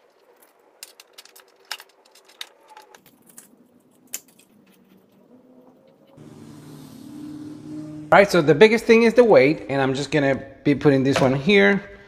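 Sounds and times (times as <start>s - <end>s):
small items clicking and tapping: 0.0s - 5.1s
steady low hum: 6.2s - 8.7s.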